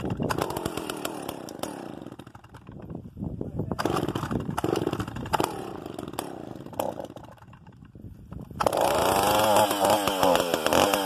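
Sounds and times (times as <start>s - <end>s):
chainsaw idling and revving: 0.0s - 2.9s, 3.8s - 11.0s.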